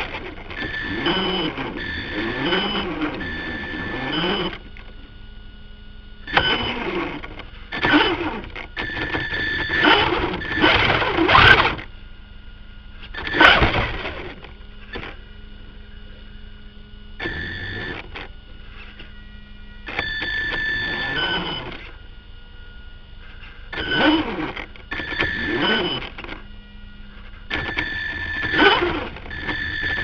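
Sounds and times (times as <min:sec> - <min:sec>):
toy car motor whirring: 0:00.0 - 0:04.7, 0:06.3 - 0:11.8, 0:23.8 - 0:26.4, 0:27.5 - 0:30.0
faint steady hum: 0:00.0 - 0:30.0.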